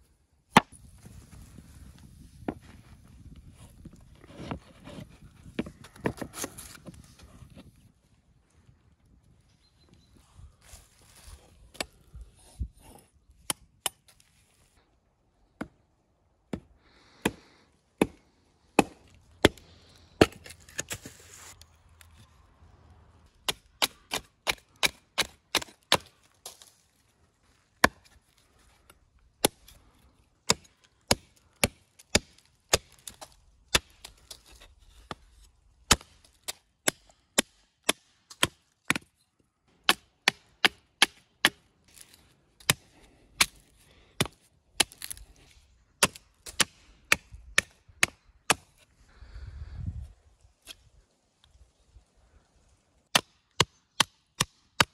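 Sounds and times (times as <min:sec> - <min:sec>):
knife chopping wood: 0:18.0 - 0:18.2, 0:18.8 - 0:19.6, 0:20.2 - 0:21.2.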